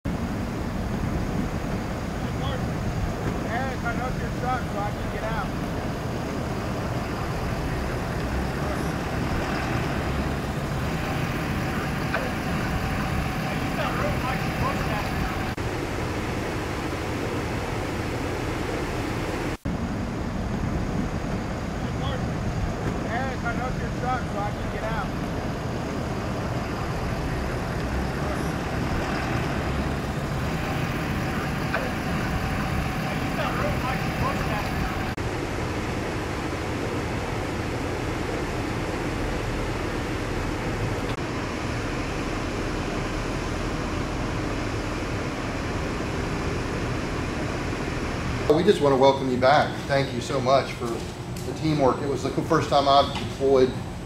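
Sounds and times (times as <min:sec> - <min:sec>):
pickup truck driving past: 0:00.9 - 0:15.6, 0:22.4 - 0:35.2.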